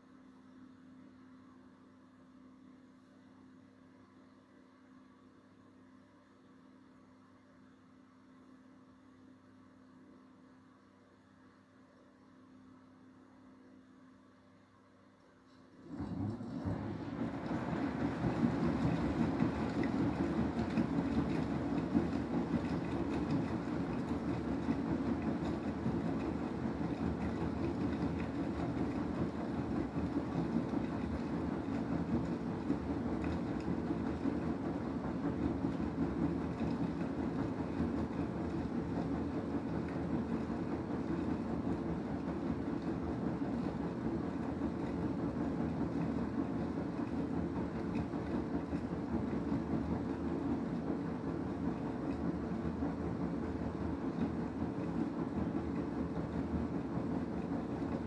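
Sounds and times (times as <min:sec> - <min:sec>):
washing machine hum: 0:00.0 - 0:58.0
washing machine drum sloshing water: 0:15.7 - 0:58.0.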